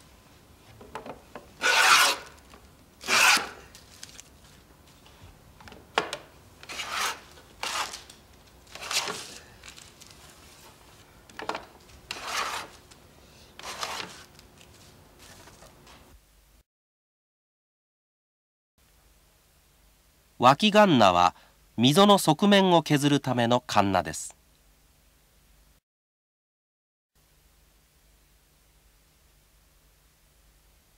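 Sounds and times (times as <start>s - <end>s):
plane scraping wood: 1.6s - 2.3s, 3.1s - 3.5s, 6.6s - 7.9s, 8.8s - 9.3s, 12.1s - 12.8s, 13.6s - 14.2s.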